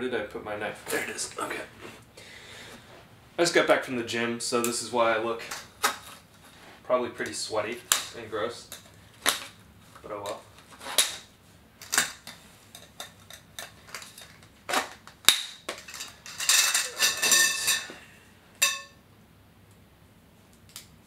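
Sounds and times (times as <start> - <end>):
tent tubes clinking and rattling: 15.7 - 18.0.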